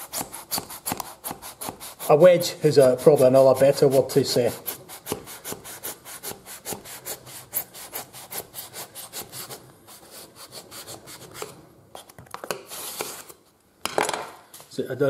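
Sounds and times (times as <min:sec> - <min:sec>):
knife sawing through foam: 0:00.0 - 0:11.4.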